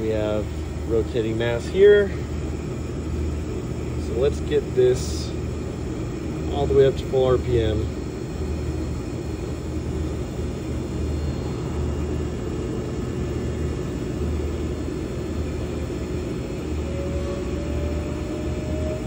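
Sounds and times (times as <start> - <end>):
electric motor hum and rush: 0.0 - 19.0
rising motor whine: 7.7 - 19.0.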